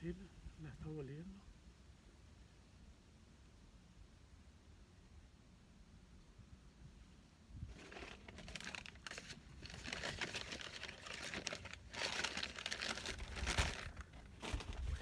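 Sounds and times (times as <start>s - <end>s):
food packaging crinkling: 7.7s - 15.0s.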